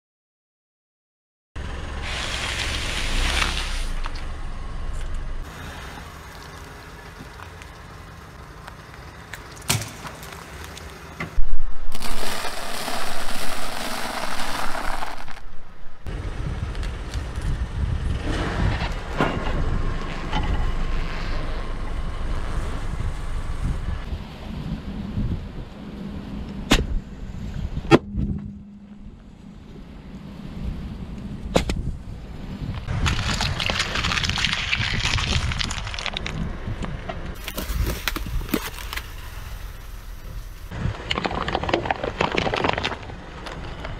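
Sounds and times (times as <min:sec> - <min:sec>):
low car noise: 0:01.6 - 0:12.0, 0:15.3 - 0:43.9
tyre crunching objects: 0:11.9 - 0:15.7, 0:32.9 - 0:36.6, 0:37.4 - 0:43.9
dry noodles breaking: 0:33.0 - 0:36.4.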